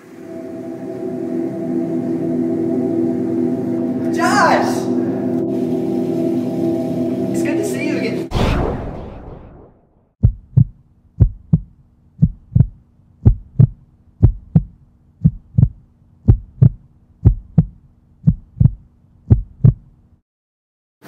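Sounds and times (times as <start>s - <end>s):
low steady hum: 0.0s - 8.3s, 10.2s - 20.2s
heartbeat thumps: 10.2s - 19.9s.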